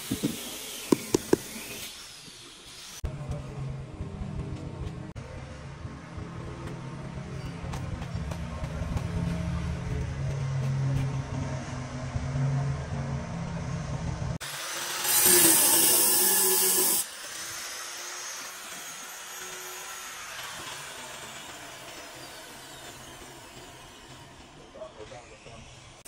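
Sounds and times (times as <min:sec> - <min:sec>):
angle grinder cutting tile: 0:00.0 - 0:03.0, 0:14.4 - 0:26.0.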